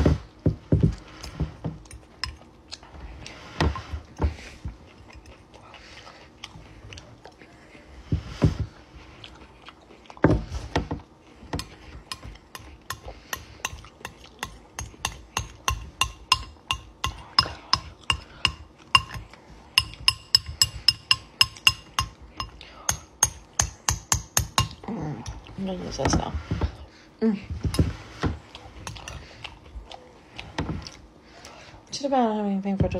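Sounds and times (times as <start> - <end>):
utensil scraping glass bowl: 19.8 - 22.6.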